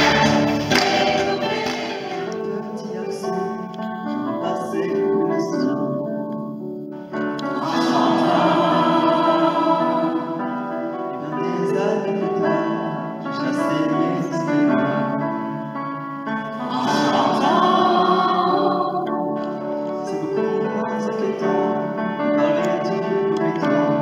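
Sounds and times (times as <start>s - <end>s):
choir singing: 0.0s - 3.2s, 7.4s - 11.8s, 16.5s - 19.4s.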